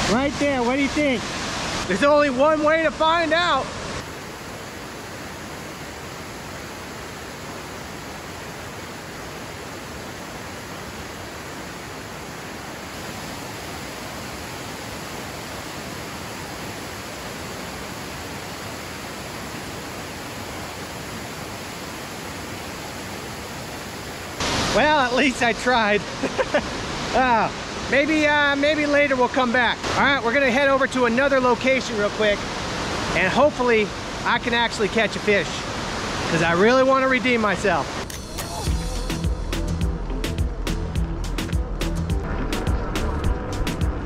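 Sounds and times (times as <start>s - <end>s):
waterfall rushing: 0.0s - 44.0s.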